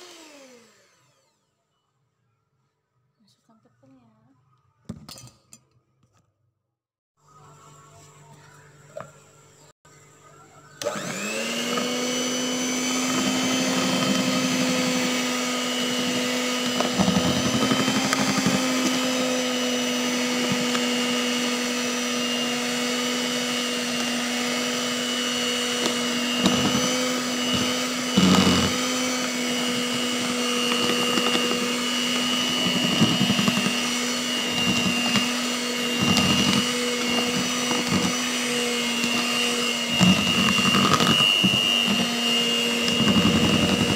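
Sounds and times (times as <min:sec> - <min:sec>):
electric hand mixer whisking batter: 0:00.0 - 0:01.4, 0:10.5 - 0:43.9.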